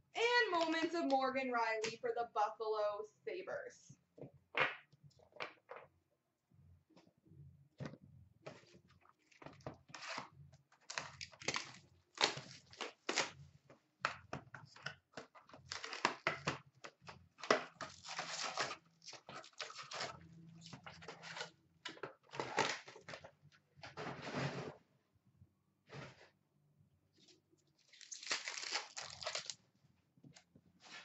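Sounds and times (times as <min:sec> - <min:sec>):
card pack wrappers tearing: 0:09.3 - 0:13.4, 0:15.6 - 0:16.5, 0:17.8 - 0:20.2, 0:27.8 - 0:29.6
cards rustling: 0:27.9 - 0:29.6.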